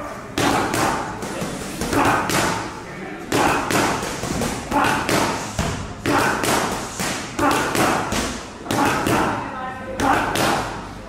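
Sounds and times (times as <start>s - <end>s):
boxing gloves smacking pads: 3.3s - 9.4s.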